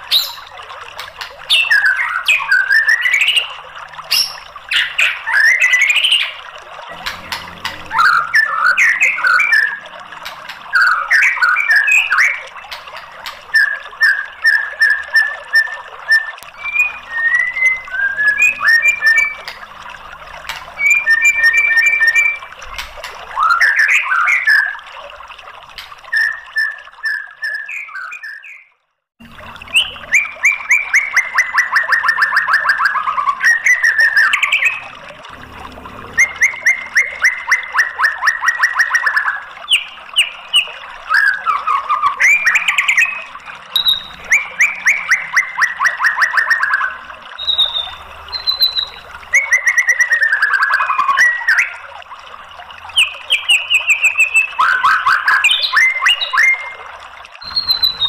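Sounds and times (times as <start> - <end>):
bird singing whistled phrases: 13.5 - 19.5, 20.8 - 22.5, 26.1 - 28.7, 29.7 - 34.8, 36.1 - 51.8, 53.0 - 56.8, 57.4 - 58.0.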